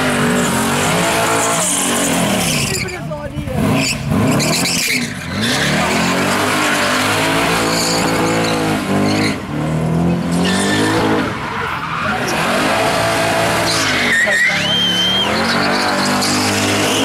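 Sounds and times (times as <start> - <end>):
car engine revving high: 0.0 - 17.0.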